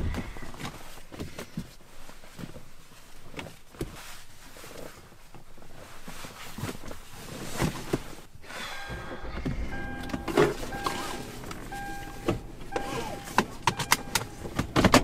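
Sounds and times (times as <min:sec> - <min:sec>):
clothing rustling: 0:00.0 - 0:08.4.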